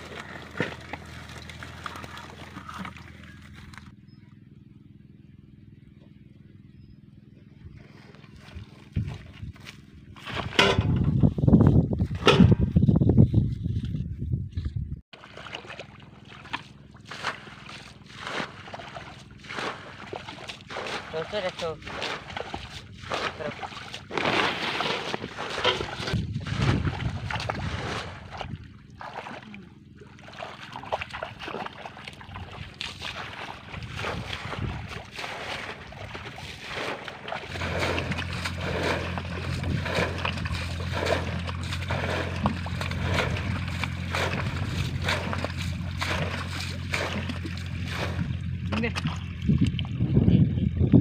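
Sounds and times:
water splashing and sloshing: 0.0 - 4.0, 7.8 - 12.9, 14.6 - 51.0
low drone: 35.0 - 49.3.

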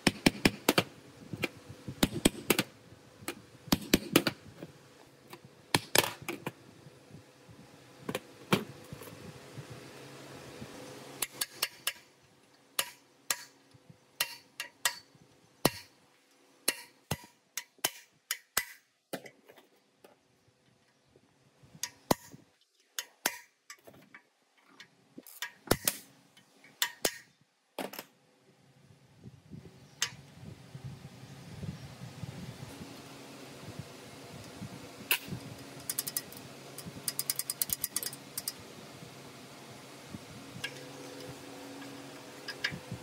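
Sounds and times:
metal tools clicking and tapping: 12.8 - 15.9, 16.6 - 18.8, 22.8 - 27.3, 35.8 - 38.6.

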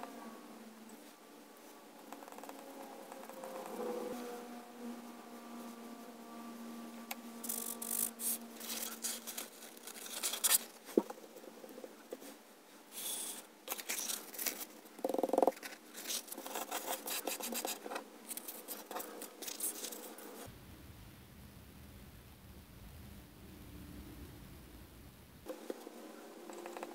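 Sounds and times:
paper scraping and rustling: 7.4 - 11.2, 13.0 - 14.8, 15.5 - 20.5.

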